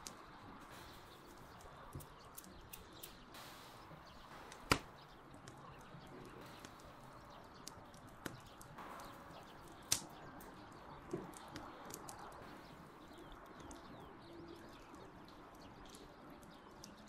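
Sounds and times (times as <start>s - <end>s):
sharp click: 2.0s - 5.6s.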